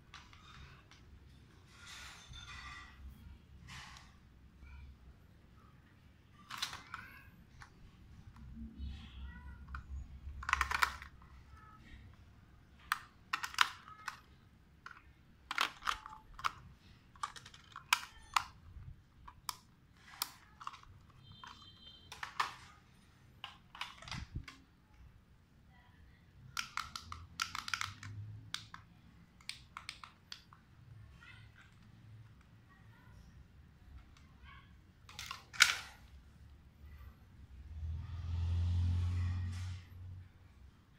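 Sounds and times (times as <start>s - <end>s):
plastic toy car clicks and rattles: 6.4s - 22.8s, 23.4s - 24.7s, 26.5s - 32.5s, 35.0s - 36.2s.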